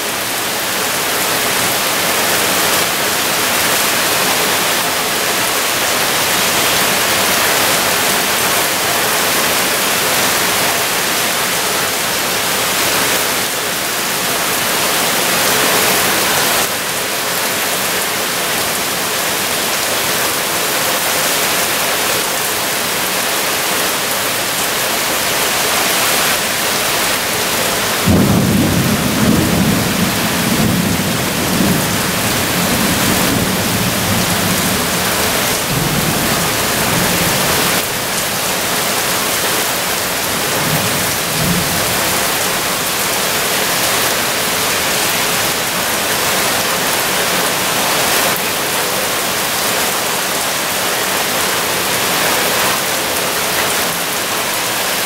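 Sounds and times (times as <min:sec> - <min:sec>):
heavy rain downpour: 0:00.0 - 0:55.0
thunder rumbling: 0:26.4 - 0:43.1.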